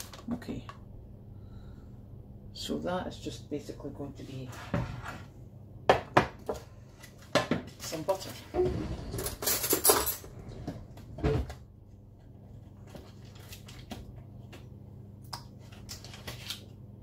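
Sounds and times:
steady low hum: 0.0s - 7.4s.

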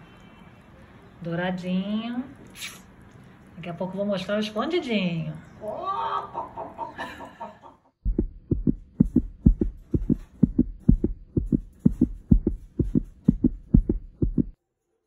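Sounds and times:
fast bass thump music: 8.1s - 14.6s.

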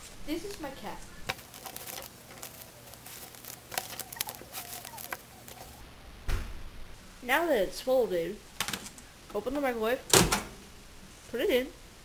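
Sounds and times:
paper bag crinkling: 0.0s - 5.8s
thump: 6.2s - 6.6s.

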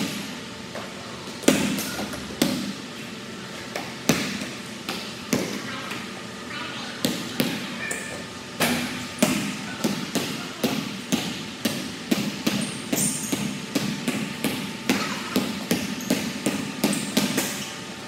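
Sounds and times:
sneaker squeaks: 7.1s - 8.4s, 12.5s - 13.6s, 14.9s - 17.8s
basketball dribbling on hardwood: 15.3s - 17.5s.

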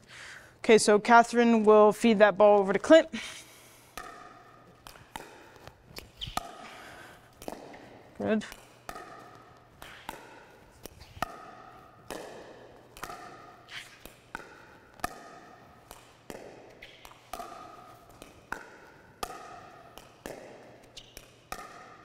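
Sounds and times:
ball bouncing on court: 3.9s - 22.0s
paddles striking plastic ball: 3.9s - 22.0s.

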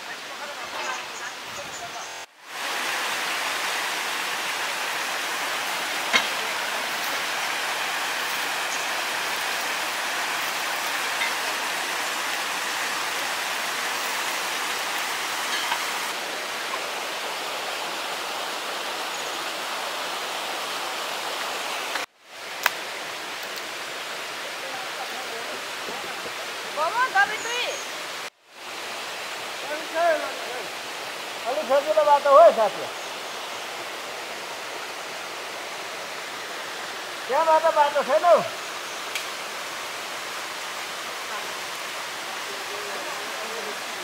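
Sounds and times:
water rushing in mountain stream: 0.0s - 44.0s.

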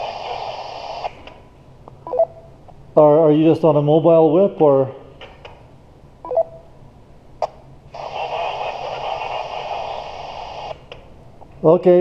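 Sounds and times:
radio static hiss: 0.0s - 1.3s, 7.9s - 10.9s
radio beep: 8.0s - 10.8s.

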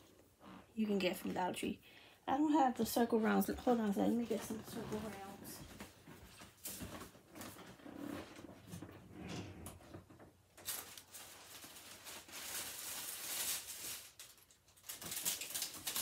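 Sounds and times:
rustle of handled items: 3.6s - 8.9s, 10.6s - 16.0s.

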